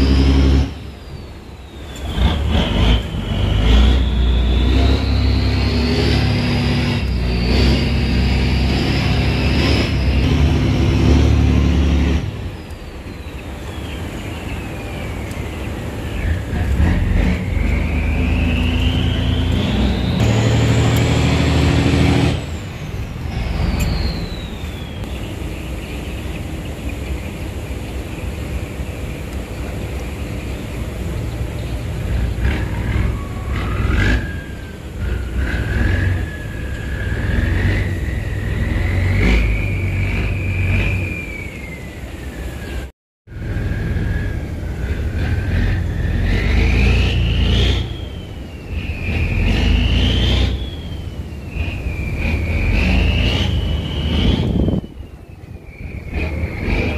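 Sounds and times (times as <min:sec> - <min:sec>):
boat diesel engine running: 0:00.0 - 0:33.1
high engine whine: 0:00.0 - 0:56.9.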